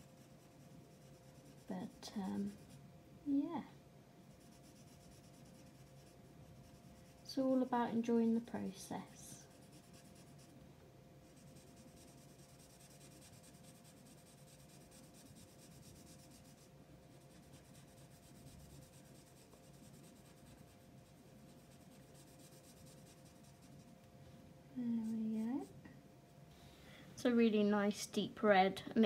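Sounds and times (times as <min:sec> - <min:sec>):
faint room tone hum: 0:00.0 - 0:29.0
marker pen scratching on paper: 0:11.3 - 0:23.9.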